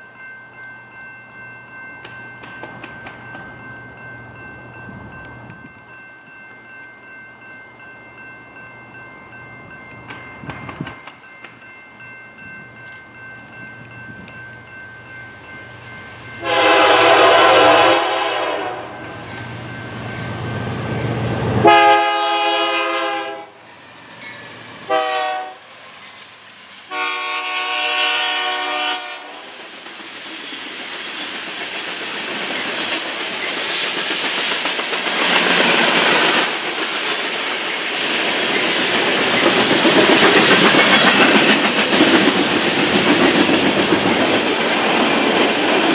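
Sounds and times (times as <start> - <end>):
train cars rumbling and clacking: 0.0 - 45.9
locomotive horn blasts: 16.4 - 19.0, 21.6 - 23.6, 24.9 - 25.6, 26.9 - 29.4.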